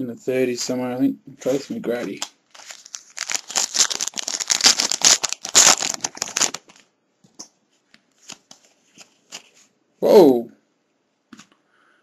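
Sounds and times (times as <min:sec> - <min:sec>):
foil wrapper crinkling and tearing: 0:02.5 - 0:06.8.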